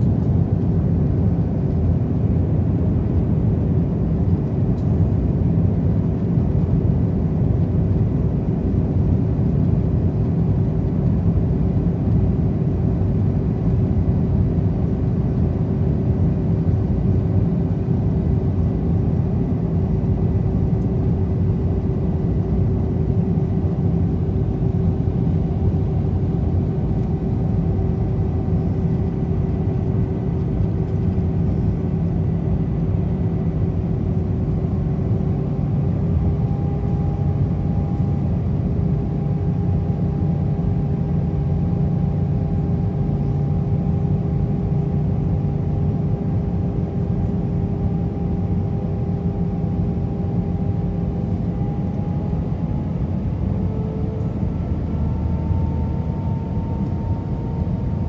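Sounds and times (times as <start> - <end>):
aircraft cabin rumble: 0.0 - 58.0
faint steady hum: 0.0 - 58.0.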